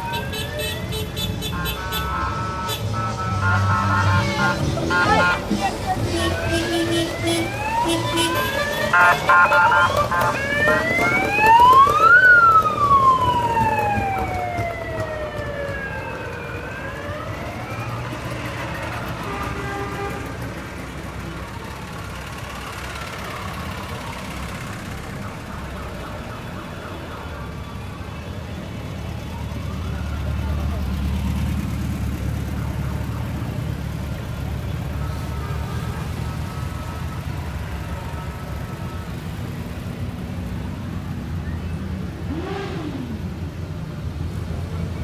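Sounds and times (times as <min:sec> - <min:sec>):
cars driving slowly past: 0:00.0 - 0:45.0
short horn blasts: 0:00.9 - 0:10.8
siren wailing: 0:01.8 - 0:05.5, 0:06.2 - 0:19.3.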